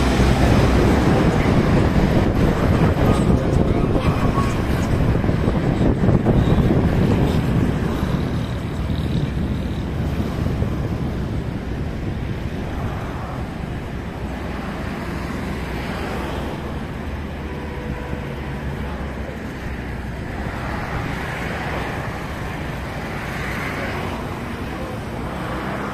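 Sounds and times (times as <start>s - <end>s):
deep rumble: 0.0s - 14.5s
distant jet roar: 0.0s - 25.9s.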